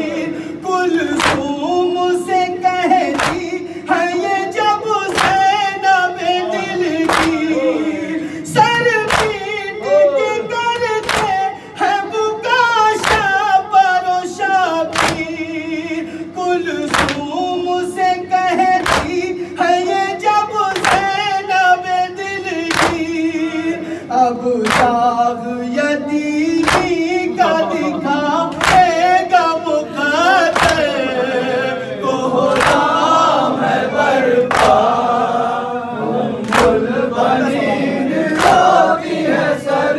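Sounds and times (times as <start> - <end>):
man chanting: 0.0 - 32.6
group singing along: 0.0 - 39.9
open-hand chest slaps: 1.2 - 1.5, 3.1 - 3.6, 5.1 - 5.5, 7.0 - 7.4, 9.1 - 9.5, 11.0 - 11.4, 13.0 - 13.3, 14.9 - 15.4, 16.9 - 17.3, 18.8 - 19.3, 22.7 - 23.1, 24.6 - 24.9, 26.6 - 27.0, 28.5 - 29.0, 30.5 - 30.9, 32.6 - 32.9, 34.5 - 34.8, 36.4 - 36.8.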